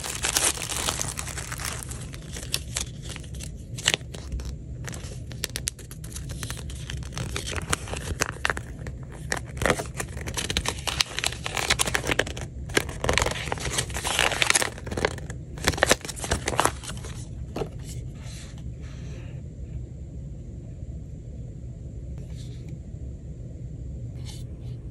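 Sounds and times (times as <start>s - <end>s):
paper crinkling and rustling: 0.0s - 18.0s.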